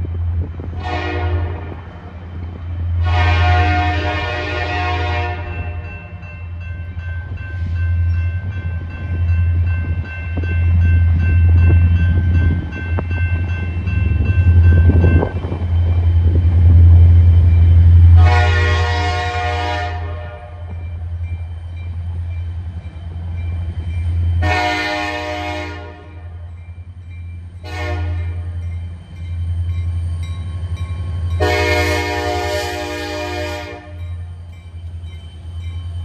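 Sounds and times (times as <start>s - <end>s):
diesel locomotive engine rumble: 0.0s - 36.0s
train air horn blasts: 0.8s - 1.8s, 3.0s - 5.8s, 18.1s - 20.7s, 24.4s - 26.4s, 27.6s - 28.4s, 31.4s - 34.0s.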